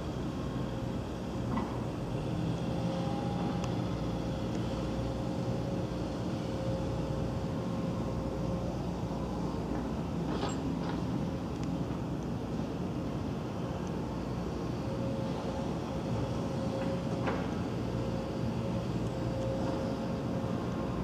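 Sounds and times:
faint steady hum: 0.0s - 21.0s
low outdoor rumble: 0.0s - 21.0s.

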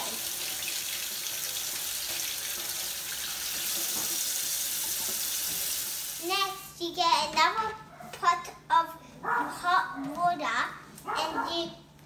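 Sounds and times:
tap water running into a sink: 0.0s - 6.3s.

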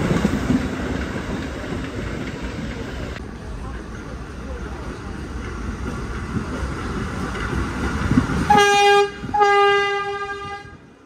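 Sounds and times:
subway train rumbling: 0.0s - 11.0s
train horn blasts: 8.5s - 10.9s.

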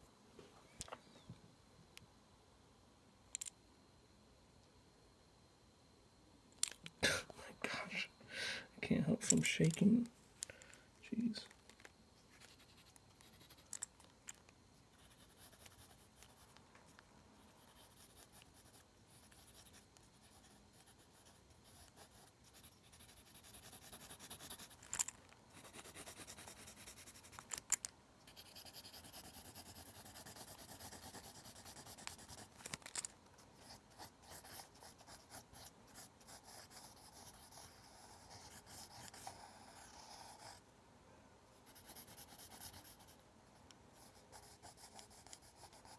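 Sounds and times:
pencil scratching on paper: 14.9s - 16.5s, 17.5s - 24.8s, 25.6s - 27.3s, 28.3s - 32.5s, 33.6s - 40.6s, 41.6s - 43.2s, 44.0s - 45.9s.

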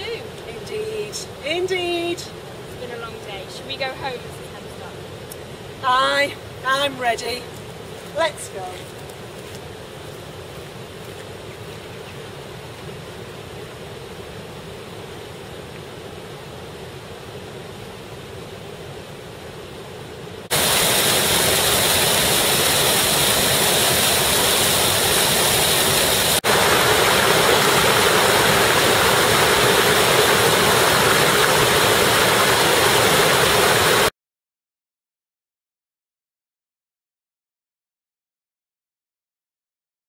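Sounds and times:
water rushing over weir: 20.4s - 34.1s.

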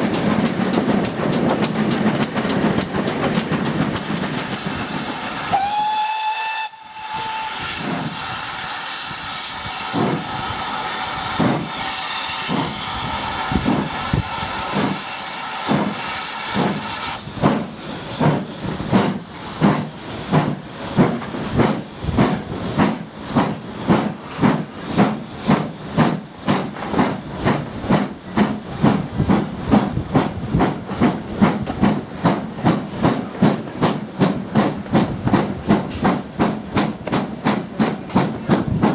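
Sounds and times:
locomotive hissing steam: 3.1s - 38.9s
steam locomotive whistle: 5.4s - 17.2s.

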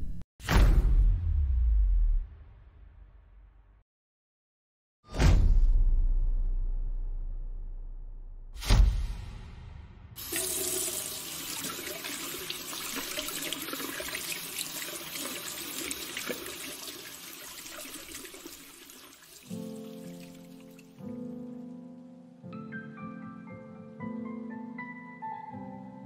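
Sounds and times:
sudden thump: 0.4s - 1.3s
tap running into sink: 10.2s - 20.9s.

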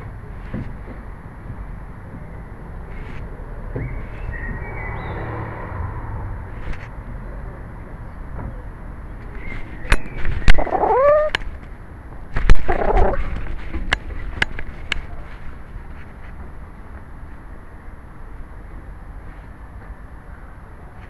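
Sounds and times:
cat meowing: 10.5s - 11.4s.

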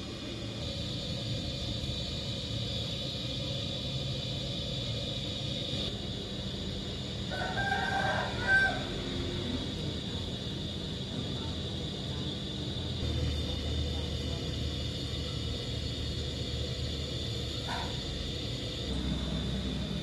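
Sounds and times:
low rumble and hiss: 0.0s - 20.0s
rooster crowing: 7.2s - 9.7s.

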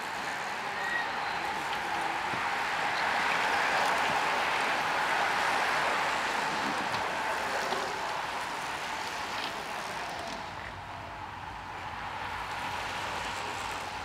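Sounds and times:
bicycle tyres hissing on asphalt: 0.0s - 14.0s.

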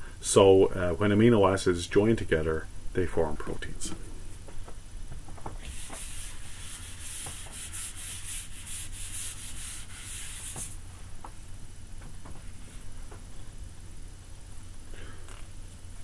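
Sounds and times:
eraser wiping whiteboard: 5.6s - 10.8s.

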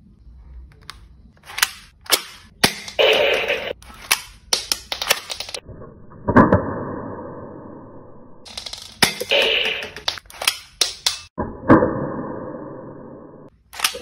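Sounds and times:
plastic toy gun clicks: 13.7s - 14.0s.

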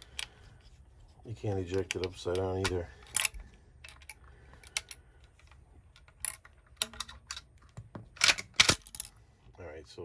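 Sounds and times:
shotgun action clicks and knocks: 5.9s - 9.1s.

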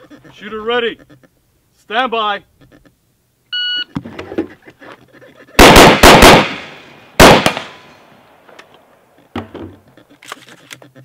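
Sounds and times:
rifle shots with echo: 5.6s - 8.3s.

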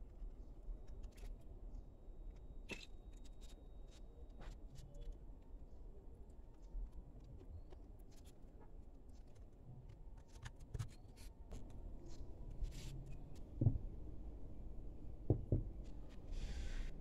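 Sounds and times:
soft knocks: 15.3s - 15.8s.

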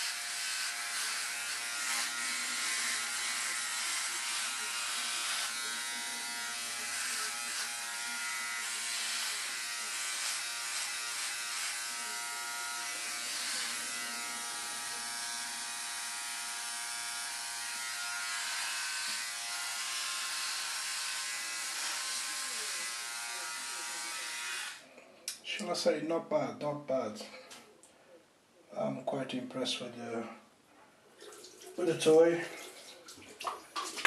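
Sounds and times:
electric shaver buzzing: 0.0s - 24.8s.

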